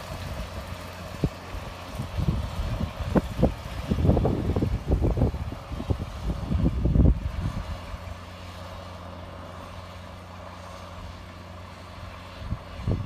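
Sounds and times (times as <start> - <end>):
wind buffeting microphone: 0.0 - 8.2, 12.2 - 13.0
tractor diesel engine drone: 0.0 - 13.0.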